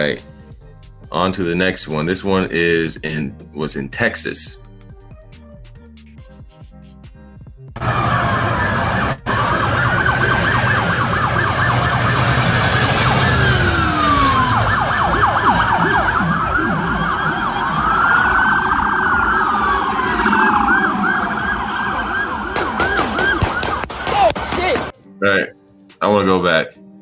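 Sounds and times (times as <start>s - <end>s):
police sirens wailing and yelping: 7.8s - 24.9s.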